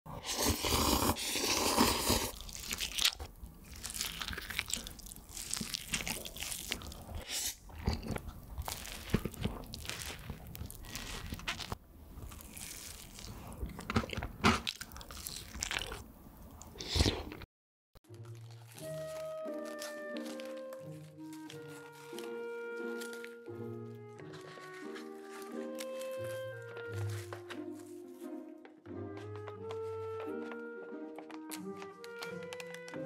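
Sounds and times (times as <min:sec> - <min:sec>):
loud slurp of noodles: 0:00.1 - 0:02.9.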